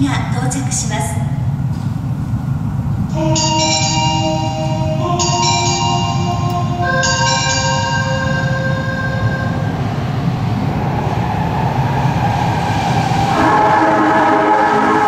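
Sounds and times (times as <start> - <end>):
train rumbling through tunnel: 0.0 - 15.0
whining train motor tones: 3.1 - 10.3, 11.1 - 15.0
bell-like arrival chime: 3.4 - 9.5.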